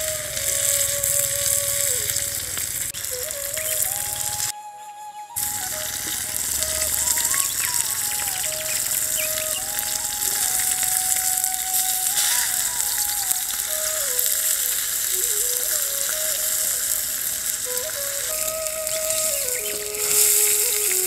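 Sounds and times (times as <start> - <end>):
fish sizzling in oil: 0.0 - 4.5, 5.4 - 21.0
simple background melody: 3.3 - 15.0.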